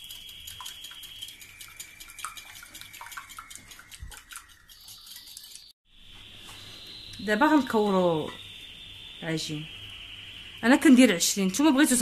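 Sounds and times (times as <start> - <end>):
whisk clicking in a bowl: 0.0 - 5.7.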